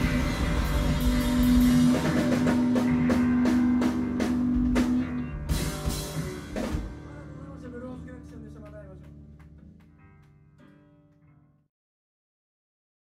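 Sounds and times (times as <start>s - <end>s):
drum and cymbal hits: 0.0s - 7.4s
rock band playing live: 0.0s - 10.9s.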